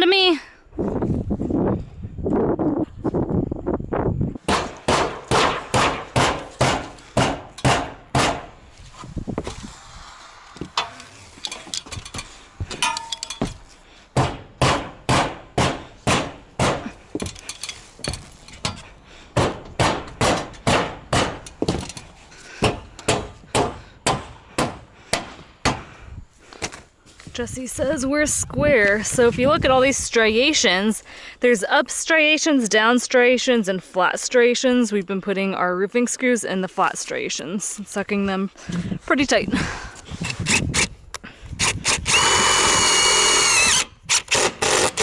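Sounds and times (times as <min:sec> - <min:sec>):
rubber mallet striking metal roofing: 0:04.4 - 0:08.6, 0:12.6 - 0:17.0, 0:19.3 - 0:21.9, 0:22.6 - 0:25.9.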